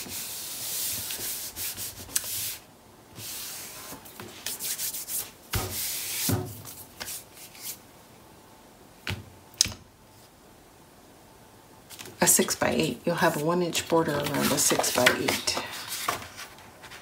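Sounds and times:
hands rubbing paper: 0:14.0 - 0:17.0.

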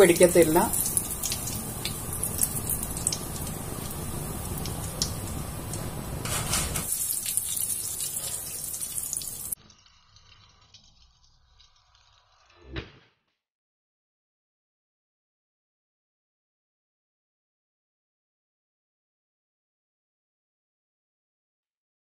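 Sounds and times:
hot oil sizzling and crackling: 0:00.0 - 0:12.7.

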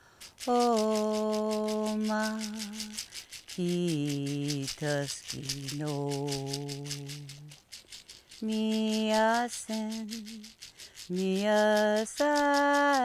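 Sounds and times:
hand rattle shaking: 0:00.0 - 0:13.0
woman singing slowly: 0:00.4 - 0:07.6, 0:08.4 - 0:10.5, 0:11.1 - 0:13.0.

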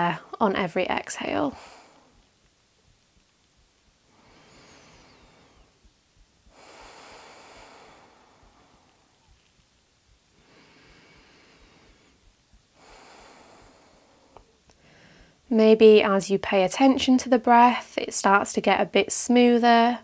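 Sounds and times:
woman breathing through the nose: 0:01.5 - 0:02.3, 0:04.0 - 0:05.8, 0:06.4 - 0:09.5, 0:10.3 - 0:15.5.

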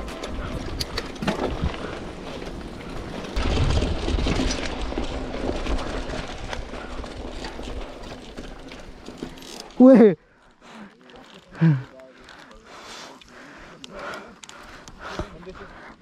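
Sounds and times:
wind rumbling on microphone: 0:00.0 - 0:09.0
bike chain and frame rattling: 0:00.0 - 0:12.5
tyres crunching on gravel: 0:01.1 - 0:09.8.

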